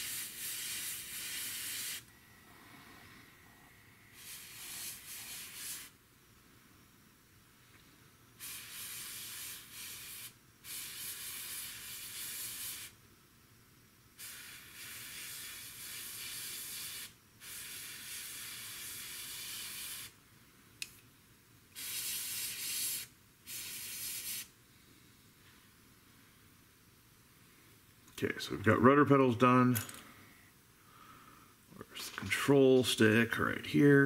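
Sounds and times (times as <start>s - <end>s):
airbrush spraying hiss: 0.0s - 3.2s, 4.0s - 6.0s, 8.4s - 13.0s, 14.2s - 20.2s, 21.7s - 25.0s.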